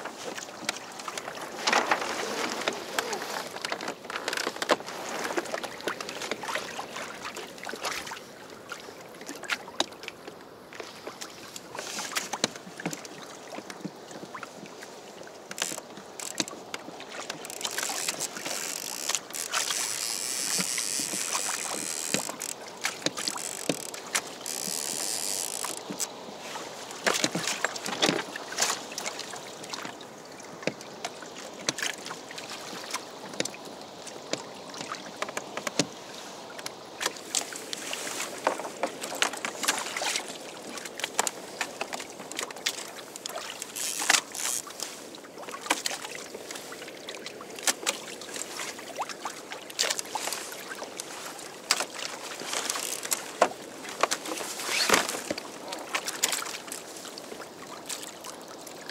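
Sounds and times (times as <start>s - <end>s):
waves splashing against kayak hull: 0.0s - 58.9s
hissing water rush: 14.9s - 30.0s.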